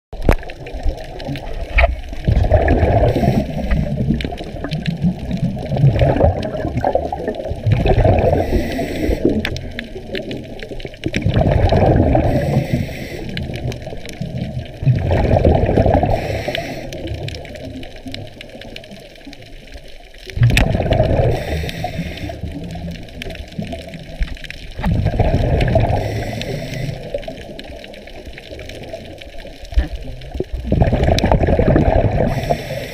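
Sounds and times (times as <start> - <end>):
exhaled bubbles gurgling: 0.1 - 32.9
diver breathing through regulator: 2.6 - 4.0, 8.0 - 9.4, 11.8 - 13.6, 15.9 - 17.1, 20.9 - 22.6, 25.5 - 27.3, 32.0 - 32.9.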